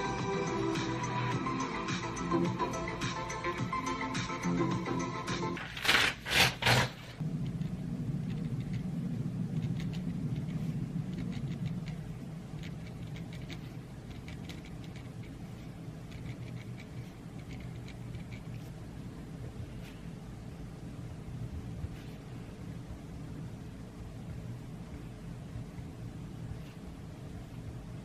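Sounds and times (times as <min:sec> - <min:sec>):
steady low hum: 0:00.0 - 0:28.0
pen scratching on paper: 0:05.7 - 0:07.2, 0:09.6 - 0:18.8, 0:21.8 - 0:22.3, 0:26.4 - 0:27.8.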